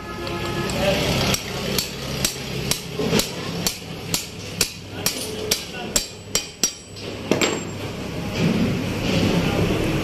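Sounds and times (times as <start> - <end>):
hammer striking metal: 0.4 - 7.9.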